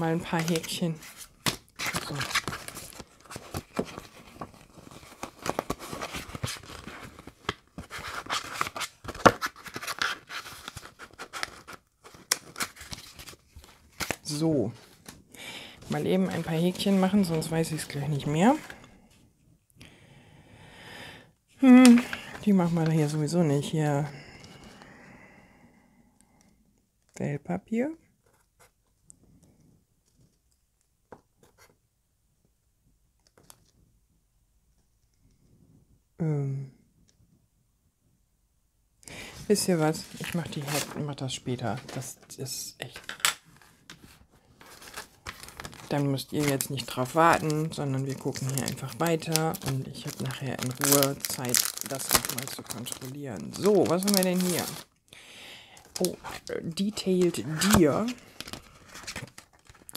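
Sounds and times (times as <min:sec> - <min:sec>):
plastic packaging crinkling: 0:00.2 - 0:15.2, 0:44.6 - 0:55.0, 0:55.8 - 0:59.9.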